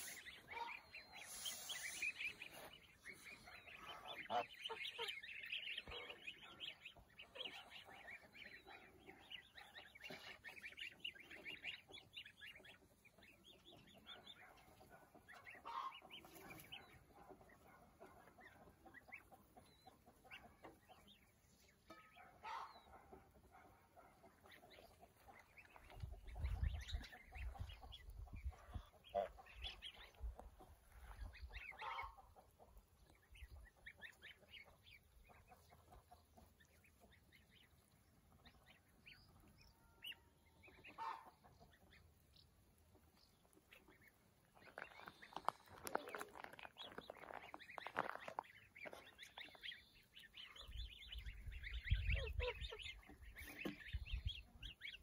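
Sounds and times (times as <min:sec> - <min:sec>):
geese calling: 0:00.0 - 0:11.8, 0:13.8 - 0:20.4, 0:25.2 - 0:32.6, 0:39.8 - 0:41.8.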